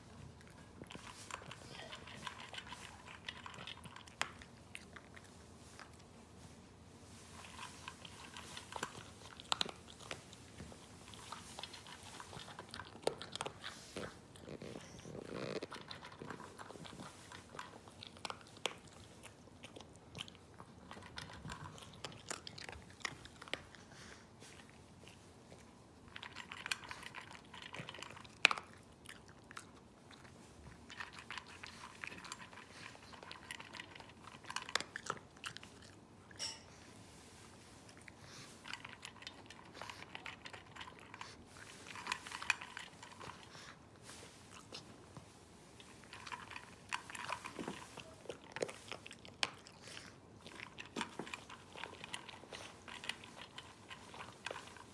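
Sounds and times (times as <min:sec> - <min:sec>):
dog crunching dry kibble: 0:00.1 - 0:06.1, 0:07.2 - 0:36.2, 0:37.8 - 0:45.1, 0:45.7 - 0:54.9.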